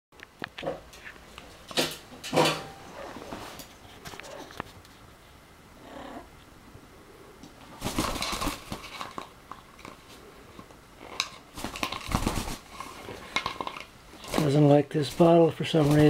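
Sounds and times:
parrot growling: 2.7s - 3.5s, 5.7s - 7.4s
wings flapping: 7.7s - 9.3s, 11.1s - 16.0s.

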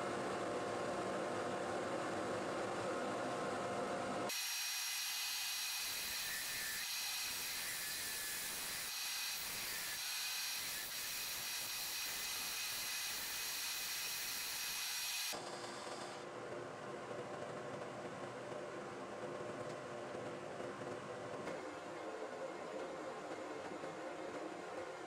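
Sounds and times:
wood lathe cutting with whine: 4.3s - 15.4s.

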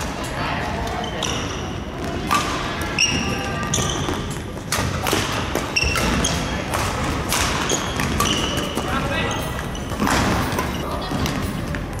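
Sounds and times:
rackets striking shuttlecock: 2.0s - 11.8s
shoes squeaking on wooden floor: 3.0s - 4.7s, 5.6s - 6.6s, 7.6s - 12.0s.

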